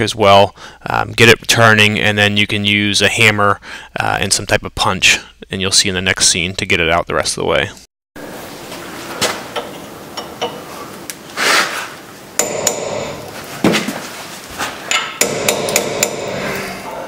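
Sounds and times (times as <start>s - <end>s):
hammer striking metal chisel: 12.4s - 13.3s, 14.9s - 16.8s.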